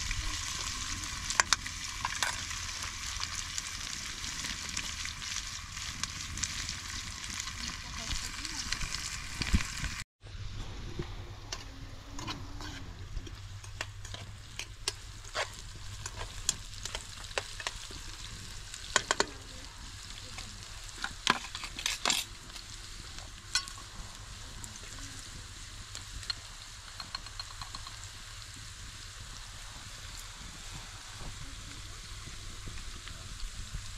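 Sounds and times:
vegetables sizzling in frying pan: 0.0 - 10.0, 12.6 - 33.9
clinks against pan: 26.3 - 28.0.

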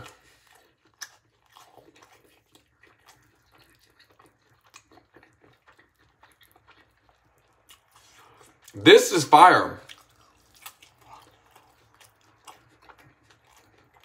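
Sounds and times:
crispy food chewing: 0.0 - 8.8, 9.6 - 14.0.

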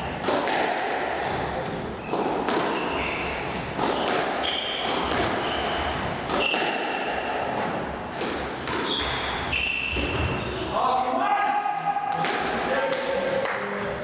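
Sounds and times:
racket striking ball: 0.1 - 5.4, 6.2 - 9.3
ball hitting walls: 0.2 - 10.4
shoes squeaking on wooden floor: 2.0 - 6.6, 8.8 - 10.7.

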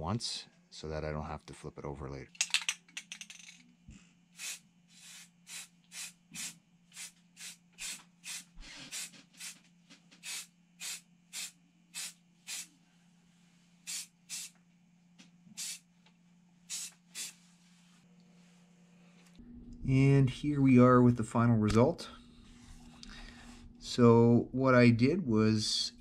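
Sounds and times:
spray can hissing bursts: 4.4 - 9.6, 10.2 - 12.7, 13.9 - 14.6, 15.5 - 15.8, 16.7 - 17.4
faint low hum: 17.3 - 26.0.

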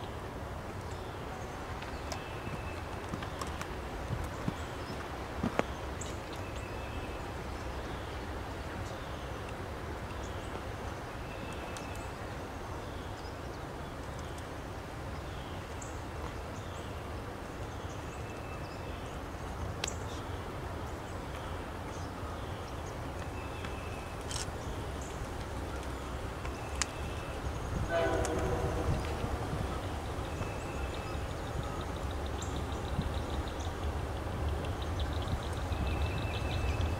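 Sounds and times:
steady low rumble: 24.8 - 36.9.

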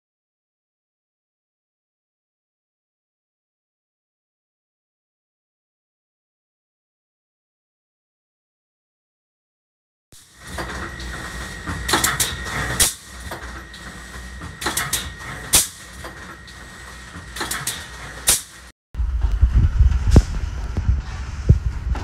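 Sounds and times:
sharp mechanical clacks: 10.2 - 18.7
machinery low hum: 10.2 - 22.0
heavy machine rumble: 10.3 - 22.0.

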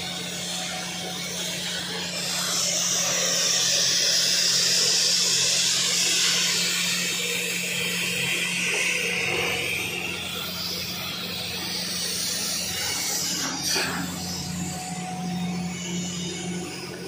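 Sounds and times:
low electrical hum: 0.0 - 17.0
plasma torch hissing: 12.7 - 14.8.

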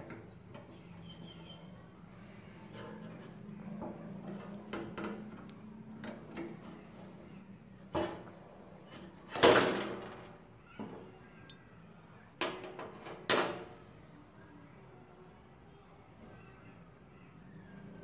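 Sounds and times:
rusted nut creaking: 0.0 - 9.5.

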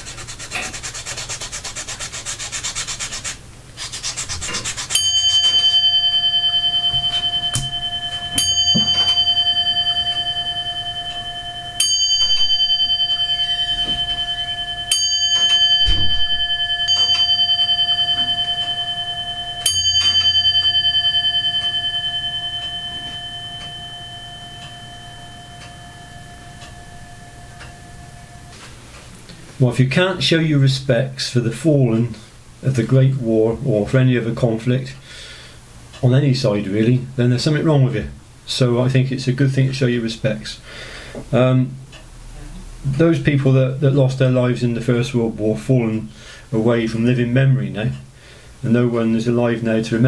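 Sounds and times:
hands rubbing and scratching: 0.0 - 5.6
bell ringing: 4.5 - 28.8.

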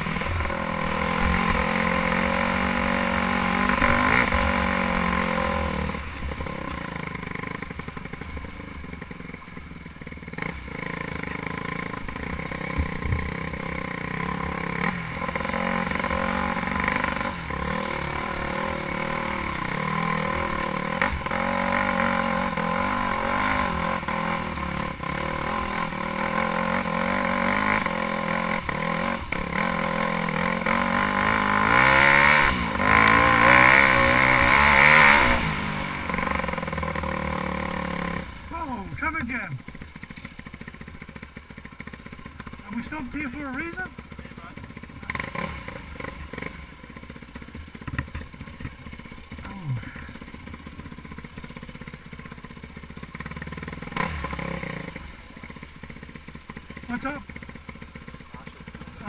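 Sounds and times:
dirt bike engine revving: 0.0 - 59.0
bike knocks and rattles: 12.7 - 13.4, 47.8 - 48.9.

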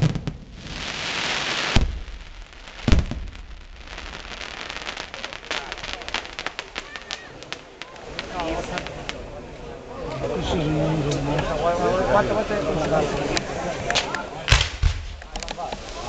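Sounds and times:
rapid crackling pops: 0.0 - 9.6.

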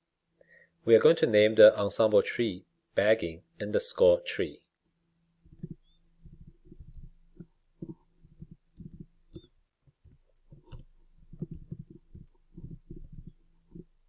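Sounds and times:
keyboard typing: 5.5 - 14.0.

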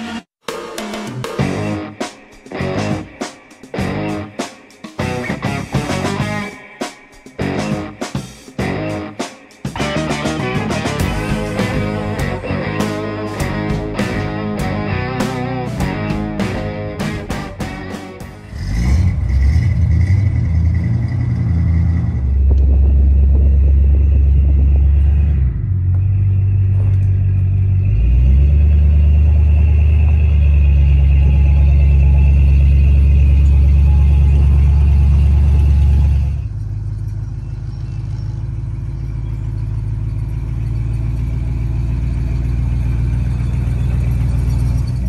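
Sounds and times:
pickup truck engine rumbling: 9.8 - 45.0.

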